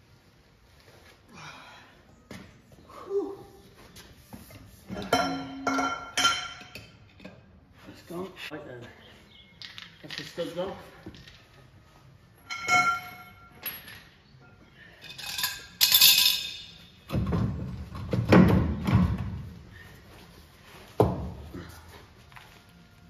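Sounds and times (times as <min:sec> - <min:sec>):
steel tools clanking on wheel studs: 0:04.9 - 0:07.4, 0:12.4 - 0:14.2, 0:14.9 - 0:17.0.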